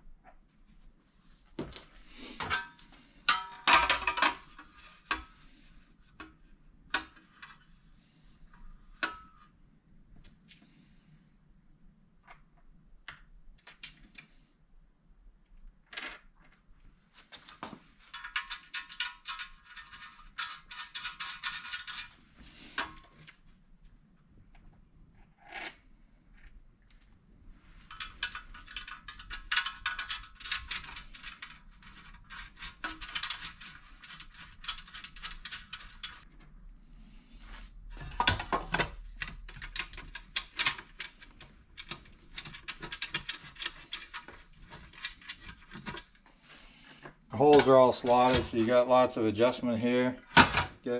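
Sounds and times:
metal parts tapping and knocking: 2.2s - 5.3s, 18.0s - 23.1s, 27.8s - 36.3s, 37.9s - 46.1s.

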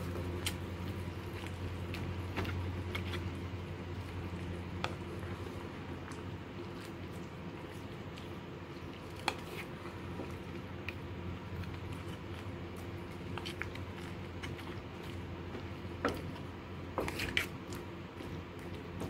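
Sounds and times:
steady low hum: 0.0s - 19.0s
wet squishing of stirred stew: 0.0s - 19.0s.

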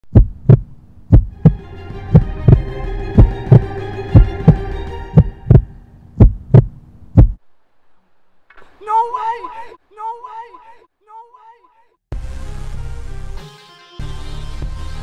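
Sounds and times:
deep drum thumps: 0.1s - 7.4s
held synth chord: 1.4s - 5.9s.

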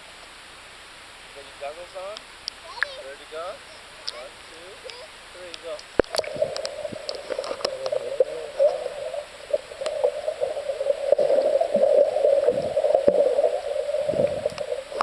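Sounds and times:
bubble clicks: 5.8s - 15.0s
muffled underwater rushing: 5.9s - 15.0s
child swimming underwater: 6.0s - 15.0s.

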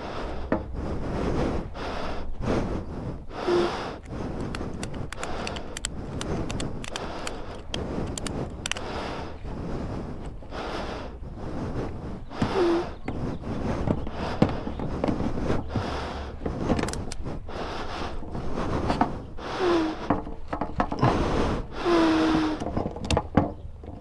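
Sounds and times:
sharp clicks: 4.0s - 9.2s, 16.5s - 17.2s.

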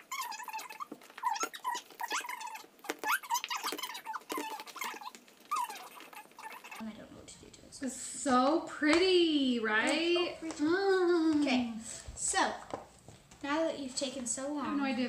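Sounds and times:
slime squeaking: 0.0s - 6.8s.

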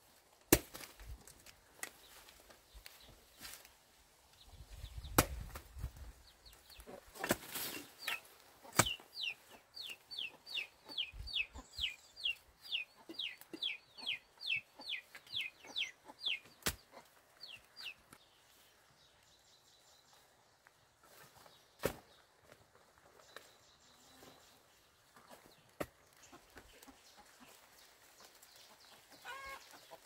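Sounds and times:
hoe striking ground: 7.2s - 9.0s
chick peeping: 7.7s - 18.0s, 25.1s - 30.0s.

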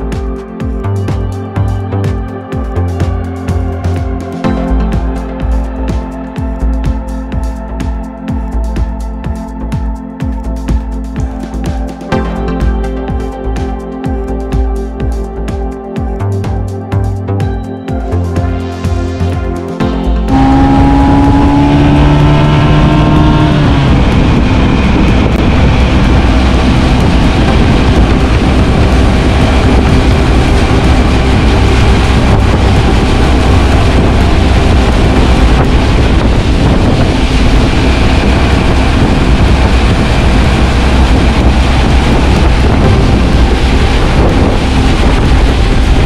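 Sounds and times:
outboard motor running: 0.0s - 46.0s
water rushing: 19.8s - 46.0s
wind buffeting microphone: 20.0s - 46.0s.

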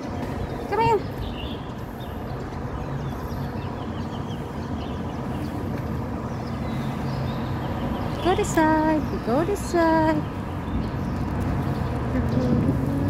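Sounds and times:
car engines running: 0.0s - 13.0s
city street traffic rumble: 0.0s - 13.0s.

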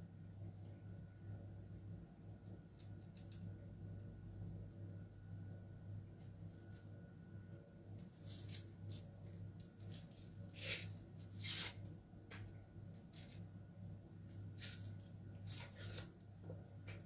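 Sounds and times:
steady low hum: 0.0s - 17.0s
papery rustling of peeled skin: 8.0s - 13.5s, 14.2s - 16.2s.

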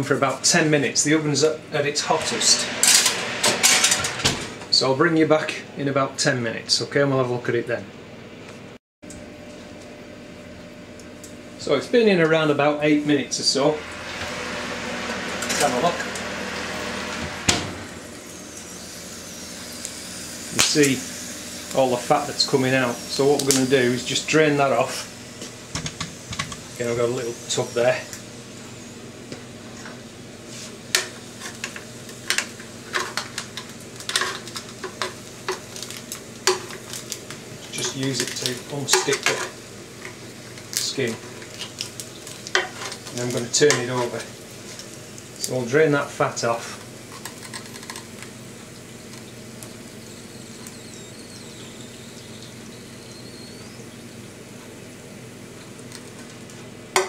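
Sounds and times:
steady low hum: 0.0s - 6.7s, 9.1s - 33.4s
hot fat crackling sizzle: 12.9s - 57.0s.

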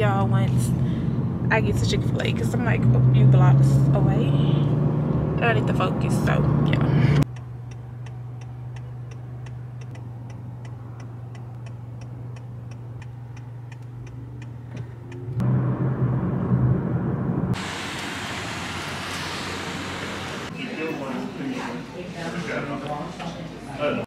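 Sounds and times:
car engine hum: 0.0s - 20.5s
engine and road noise: 0.0s - 23.4s
car turn signal clicking: 7.2s - 15.4s.

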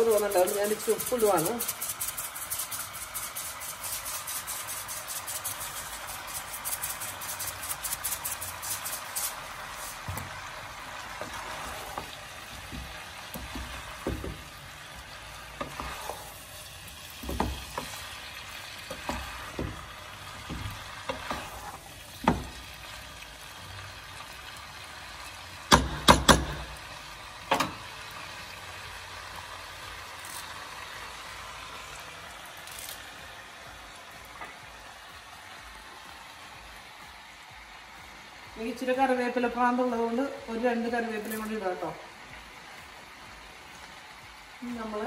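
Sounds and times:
wooden spatula scraping a pot: 0.0s - 10.4s, 11.0s - 22.6s
meat sizzling in a pot: 0.0s - 45.0s.

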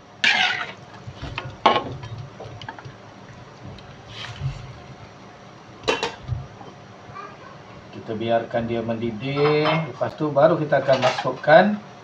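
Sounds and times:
spatula scraping and knocking on pan: 0.1s - 5.2s
broth sloshing in a wok: 0.2s - 6.6s.

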